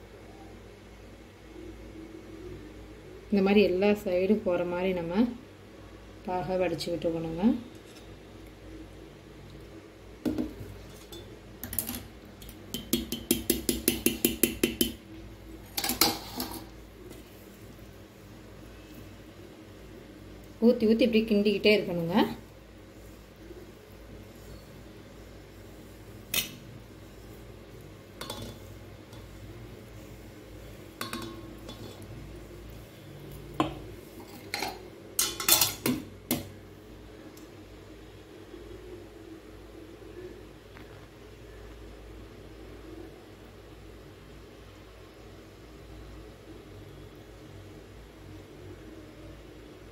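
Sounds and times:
ladle clinking on steel bowl: 31.0 - 32.0
metal utensils clinking on bowl: 31.0 - 32.0, 34.2 - 36.0.

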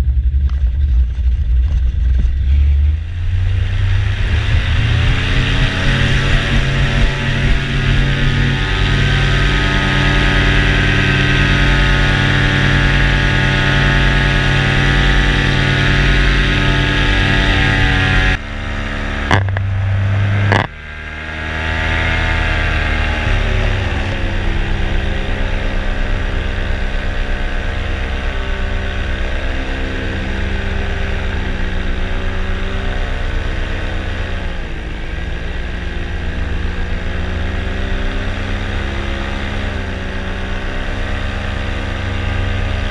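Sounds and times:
paramotor engine running: 0.0 - 42.9.

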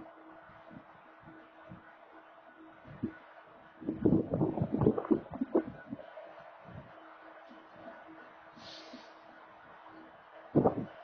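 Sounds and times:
distant road traffic: 0.0 - 11.0
short hiss: 8.6 - 9.2.

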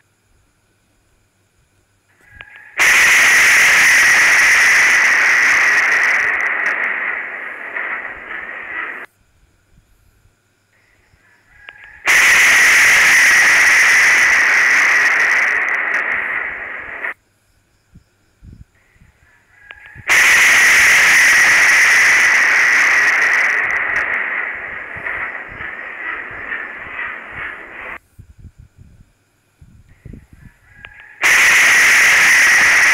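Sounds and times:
thunderclap crash: 2.8 - 9.1, 12.0 - 17.2, 20.0 - 28.0, 31.2 - 32.9.

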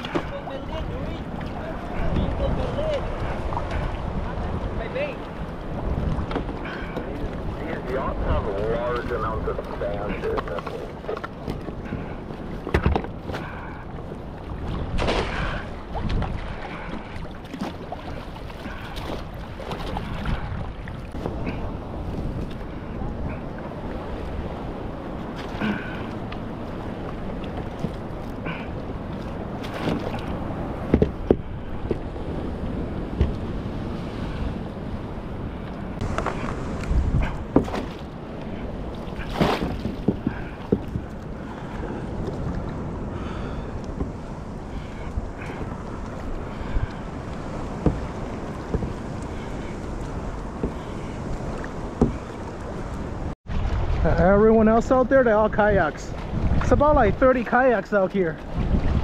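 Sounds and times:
water splashing against kayak hull: 0.0 - 59.0
wind buffeting microphone: 0.0 - 59.0
sharp knocks on boat: 11.1 - 13.4, 29.6 - 30.2, 30.8 - 32.1, 33.1 - 33.5, 36.0 - 38.0, 39.3 - 41.1, 47.7 - 49.0, 51.9 - 52.3.

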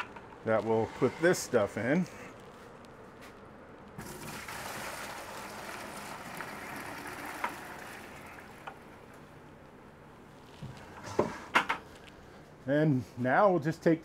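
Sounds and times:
liquid pouring into bucket: 4.0 - 9.2.

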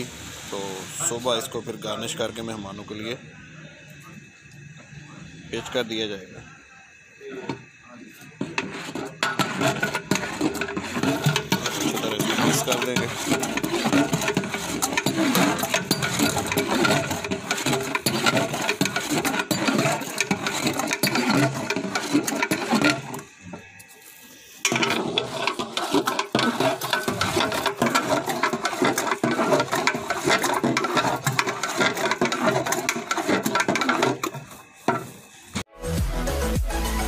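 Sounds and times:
metal paddle scraping pot: 7.3 - 35.7.

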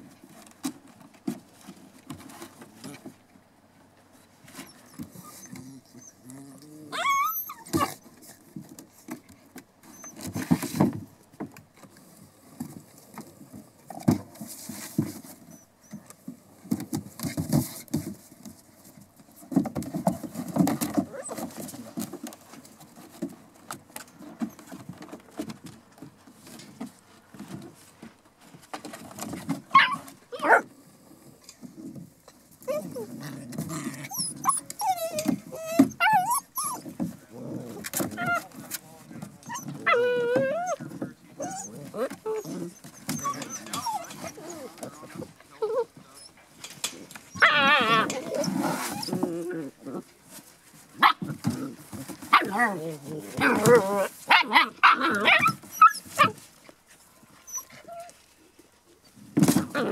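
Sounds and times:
puppies scuffling: 0.0 - 59.9
puppies play-growling: 4.3 - 11.0, 12.0 - 25.7, 28.9 - 58.2, 59.3 - 59.9
puppy high whines: 4.6 - 8.0, 33.8 - 36.9, 39.4 - 40.8, 41.4 - 44.9, 47.3 - 49.2, 53.4 - 56.4.

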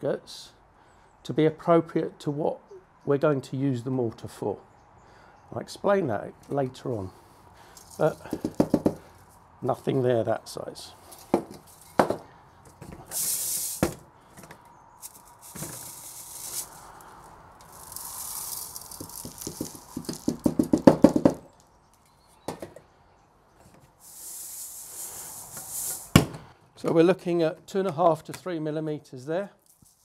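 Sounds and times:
metal sieves clinking: 7.8 - 8.6, 13.0 - 14.0, 15.0 - 20.4
sand hissing through sieves: 7.9 - 8.3, 13.0 - 14.0, 15.0 - 20.7, 24.0 - 26.2.

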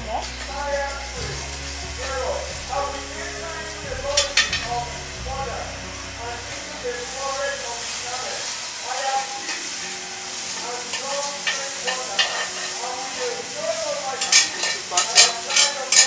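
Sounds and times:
food sizzling in a frying pan: 0.0 - 16.0
spatula scraping a pan: 9.5 - 13.5.

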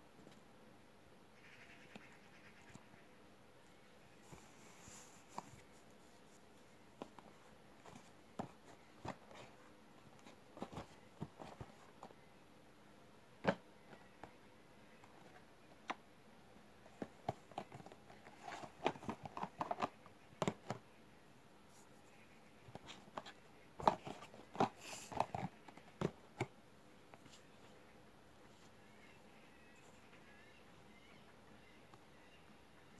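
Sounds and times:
cardboard boxes tapping and scraping: 7.0 - 12.2, 16.9 - 20.8, 22.7 - 26.5.

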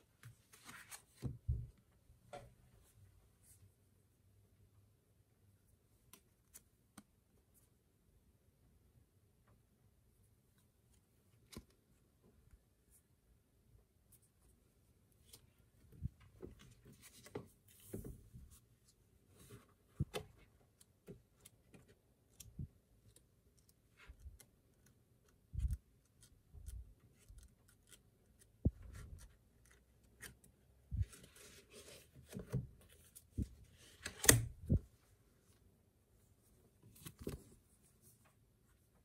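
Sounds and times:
photobook pages rustling: 0.2 - 1.5, 27.1 - 34.8, 36.9 - 38.2.

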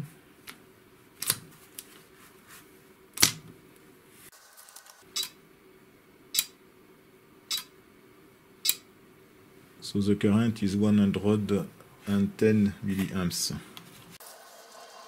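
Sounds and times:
solenoid clicking: 6.4 - 6.6, 8.6 - 8.8.

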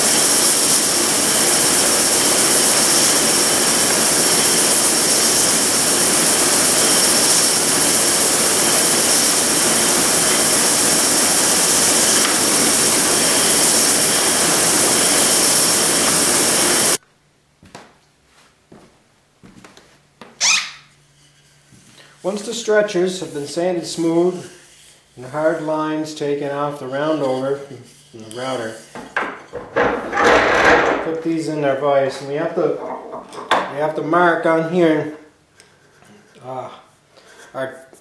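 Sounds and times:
belt sander running: 0.0 - 17.0.

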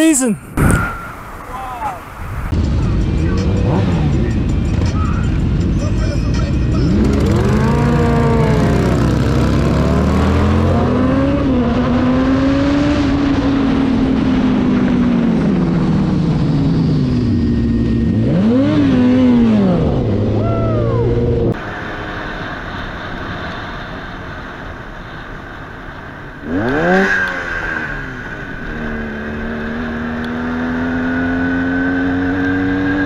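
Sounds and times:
quieter motorcycle riding: 0.0 - 33.0
motorcycle engine revving: 2.6 - 21.6, 26.4 - 33.0.

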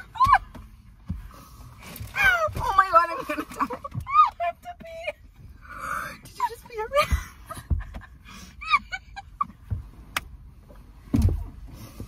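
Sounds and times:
women laughing breathlessly: 6.9 - 9.7.

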